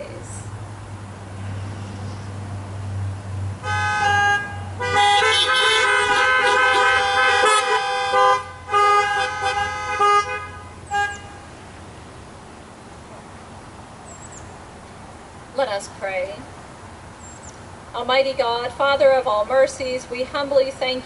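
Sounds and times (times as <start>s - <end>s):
car horns honking: 3.6s - 11.8s.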